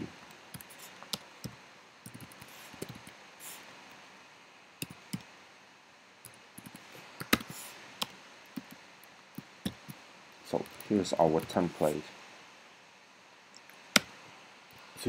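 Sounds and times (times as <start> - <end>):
keyboard typing clicks: 0.6 - 3.1, 6.6 - 8.8.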